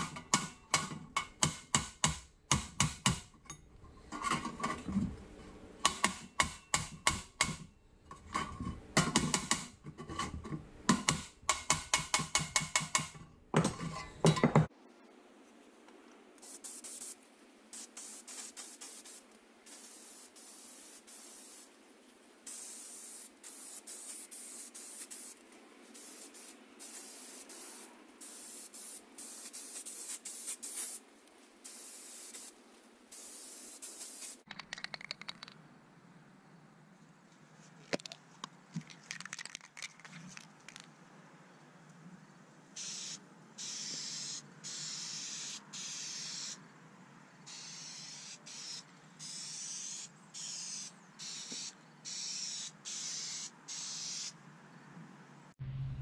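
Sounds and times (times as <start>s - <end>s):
aerosol spray can hissing: 16.4s - 17.2s, 17.8s - 21.8s, 22.5s - 25.4s, 26.0s - 31.0s, 31.7s - 34.5s, 42.8s - 46.6s, 47.5s - 54.3s.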